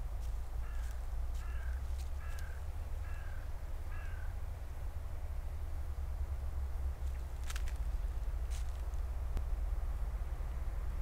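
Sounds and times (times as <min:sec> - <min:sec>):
steady low rumble: 0:00.0 - 0:11.0
bird calling: 0:00.6 - 0:04.3.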